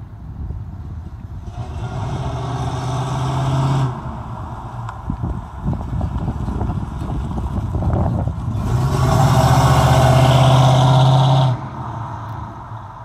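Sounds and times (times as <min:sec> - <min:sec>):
car engine driving past: 0:08.5 - 0:12.7.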